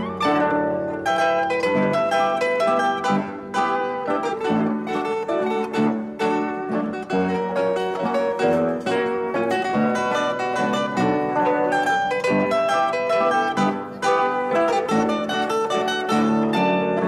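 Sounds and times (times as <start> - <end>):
plucked string instrument: 0.0 - 17.0.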